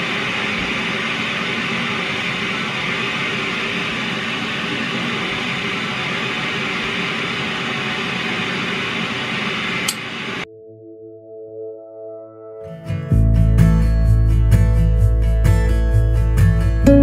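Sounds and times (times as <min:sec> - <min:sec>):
click: 0:09.8 - 0:10.0
soft guitar music: 0:12.4 - 0:17.0.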